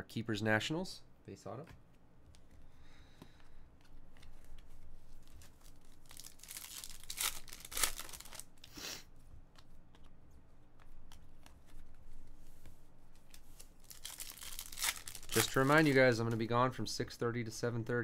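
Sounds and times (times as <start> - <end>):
foil pack tearing: 5.6 - 8.5, 13.9 - 15.9.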